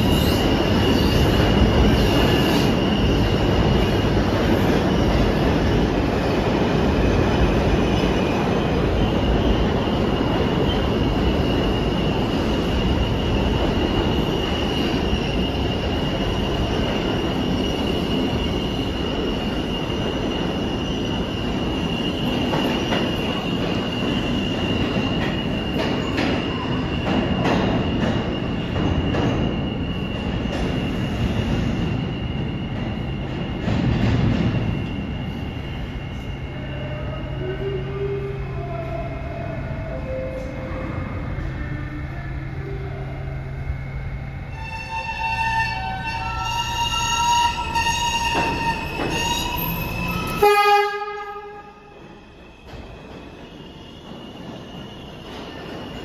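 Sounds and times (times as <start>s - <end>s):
train wheels rumbling on rails: 0.0s - 56.0s
high wheel squeal: 43.7s - 50.8s.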